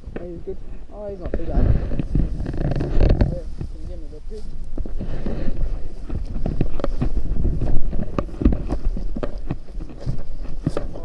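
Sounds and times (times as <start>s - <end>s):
wind rumbling on microphone: 0.0s - 11.0s
handling knocks and rustles: 0.2s - 11.0s.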